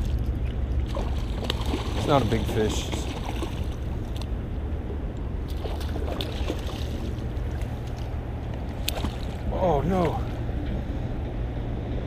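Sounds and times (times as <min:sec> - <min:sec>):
fish splashing in water: 0:00.0 - 0:04.3, 0:05.5 - 0:09.5.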